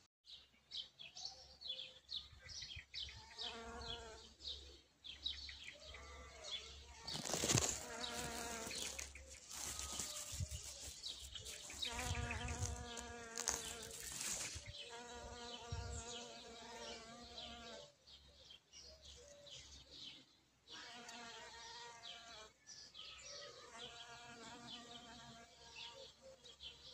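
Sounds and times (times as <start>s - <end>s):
small birds chirping: 0.3s - 26.9s
bee buzzing in flight: 6.0s - 17.8s.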